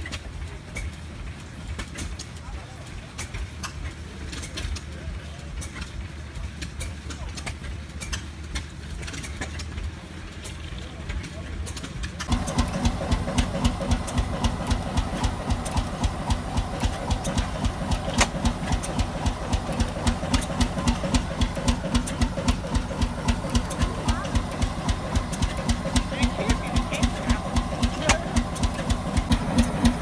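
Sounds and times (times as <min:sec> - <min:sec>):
diesel engine exhaust beating: 0:00.0 - 0:30.0.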